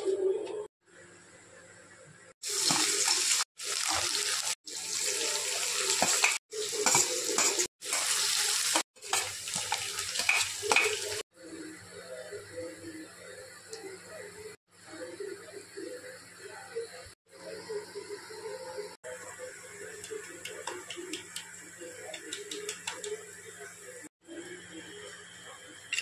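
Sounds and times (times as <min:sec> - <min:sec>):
vegetables sizzling in hot oil: 0:02.4 - 0:11.2.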